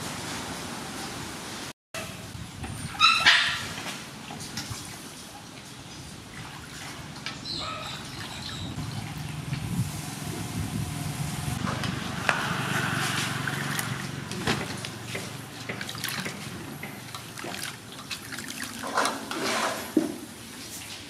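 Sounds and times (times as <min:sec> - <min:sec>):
dog yelping: 0:03.0 - 0:03.6, 0:07.5 - 0:08.5
water splashing in metal basin: 0:11.7 - 0:19.9.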